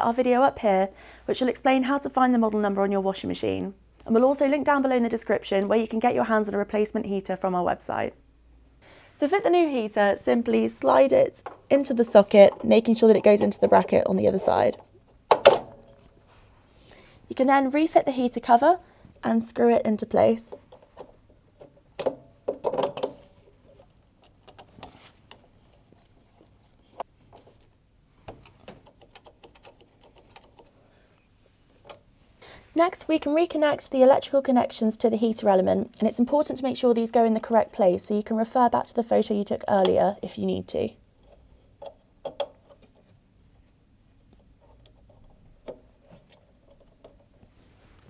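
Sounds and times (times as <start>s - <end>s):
wire connectors clicking: 24.2s - 25.5s, 28.2s - 30.7s, 41.0s - 43.1s.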